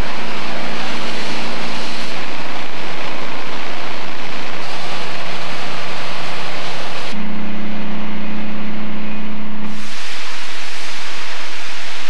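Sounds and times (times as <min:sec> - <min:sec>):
water spraying hiss: 0:09.7 - 0:12.0.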